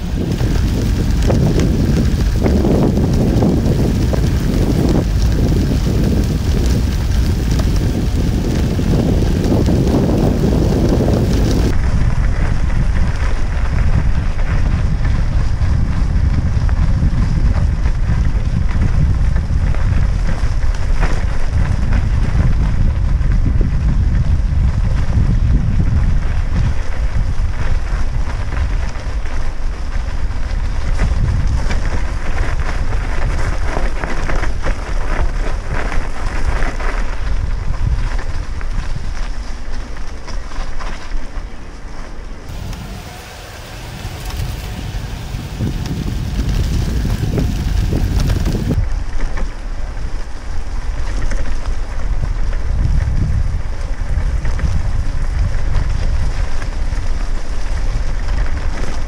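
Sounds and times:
bicycle tyres crunching on gravel: 0.0 - 59.0
wind rumbling on microphone: 0.0 - 59.0.

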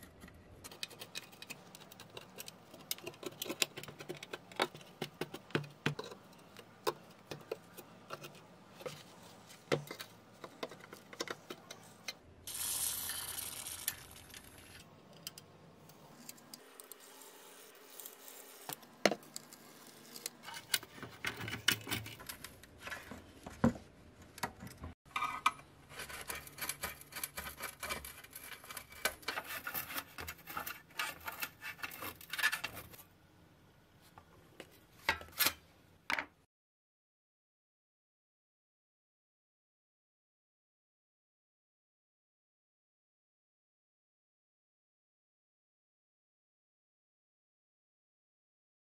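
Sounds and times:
screwdriver scraping on metal: 25.1 - 33.0.

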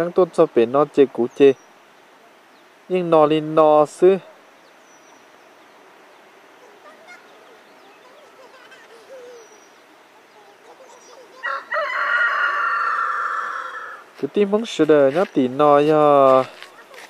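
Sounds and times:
faint high bird chirps: 4.3 - 13.9
rooster crowing: 11.3 - 14.1.

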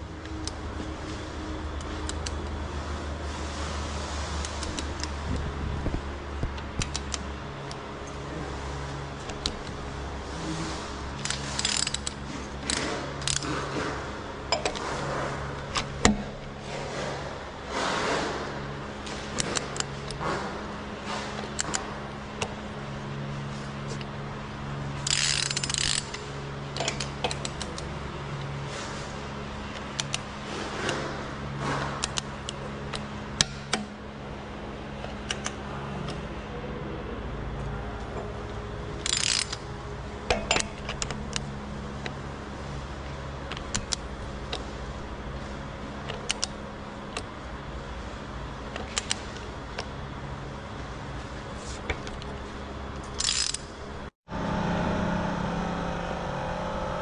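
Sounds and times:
steady low hum: 0.0 - 57.0
sharp metal clicks and taps: 6.5 - 7.8, 46.1 - 47.3
torque wrench ratchet clicking: 11.2 - 13.4, 25.0 - 26.2, 39.0 - 39.6, 53.2 - 53.7.

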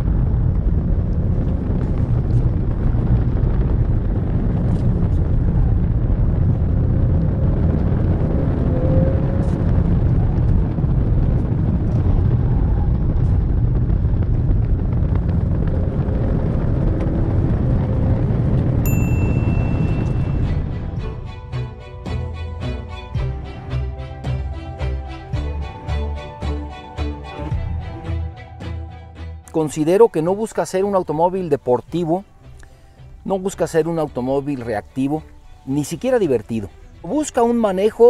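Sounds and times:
car cabin road rumble: 0.0 - 28.6
high beep: 18.9 - 20.4.

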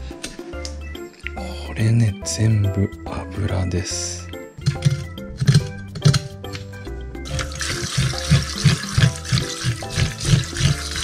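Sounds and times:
background music with steady beat: 0.0 - 11.0
tap water running into sink: 7.3 - 11.0.

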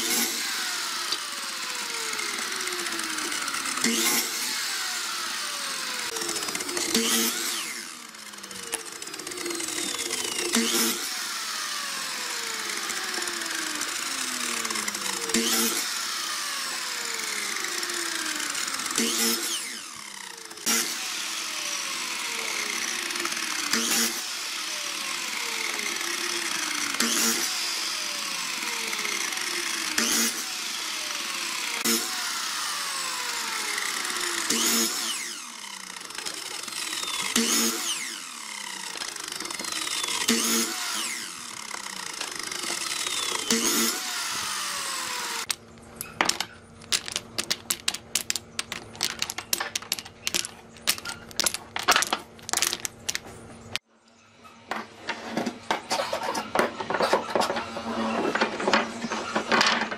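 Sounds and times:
miter saw cutting wood: 0.0 - 53.2
wooden blocks clattering into basket: 45.5 - 53.4, 55.7 - 59.9.

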